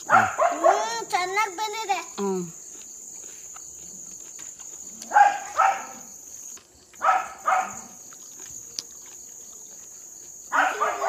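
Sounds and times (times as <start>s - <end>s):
dog barking: 0.0s - 1.0s, 5.0s - 6.1s, 7.0s - 8.0s, 10.5s - 11.0s
crickets chirring: 0.0s - 11.0s.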